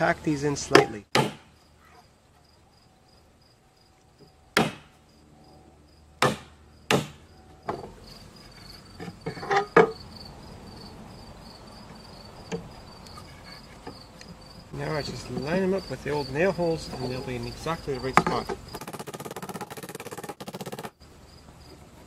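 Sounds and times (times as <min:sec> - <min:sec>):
hammer striking nails: 0:00.7 - 0:01.5, 0:04.6 - 0:04.9, 0:06.2 - 0:07.8, 0:18.7 - 0:20.9
insect chirping: 0:01.3 - 0:22.0.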